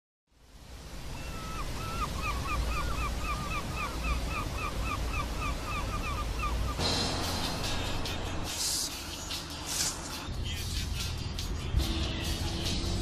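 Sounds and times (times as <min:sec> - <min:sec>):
surf-like wash of noise: 0:00.4 - 0:13.0
bird calling: 0:01.1 - 0:08.1.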